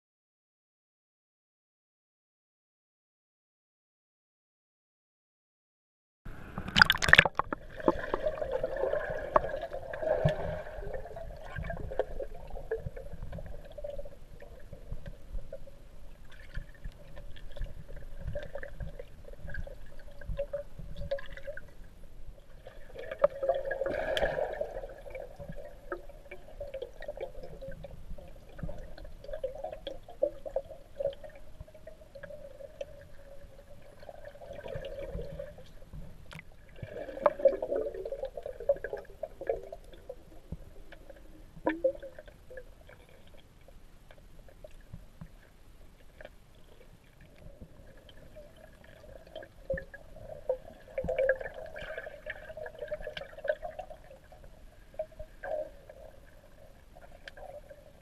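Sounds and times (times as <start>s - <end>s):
small clicks underwater: 6.6s - 8.1s, 11.5s - 21.8s, 34.7s - 37.6s, 38.4s - 51.9s, 56.9s - 57.9s
splash into water: 6.6s - 8.2s.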